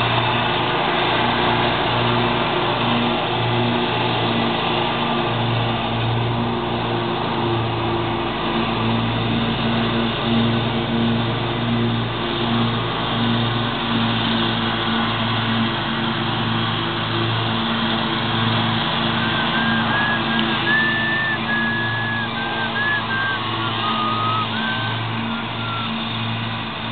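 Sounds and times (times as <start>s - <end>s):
lawn mower engine droning: 0.0s - 26.9s
high whistle-like notes: 19.1s - 26.2s.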